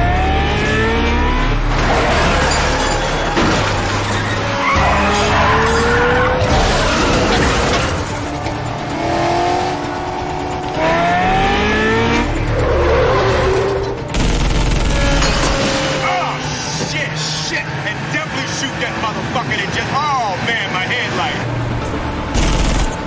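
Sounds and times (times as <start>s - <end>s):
tyres squealing and skidding: 0.0s - 14.1s, 14.8s - 21.5s
car engines revving: 0.0s - 23.0s.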